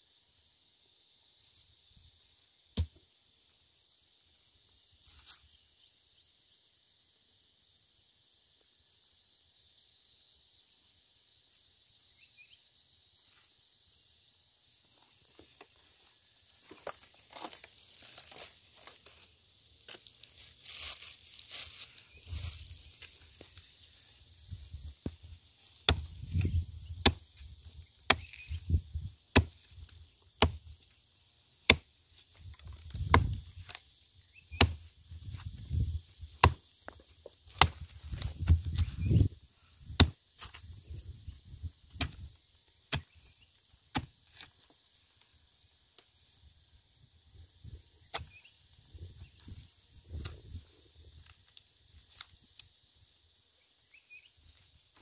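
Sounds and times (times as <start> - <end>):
hatchet chopping stump: 2.8 - 3.0, 25.8 - 27.3, 28.0 - 28.6, 29.3 - 30.8, 31.6 - 31.9, 32.7 - 33.8, 34.5 - 35.5, 36.3 - 36.6, 37.5 - 38.9, 39.9 - 40.6, 41.9 - 42.3, 42.9 - 43.2, 43.9 - 44.5, 48.1 - 48.4.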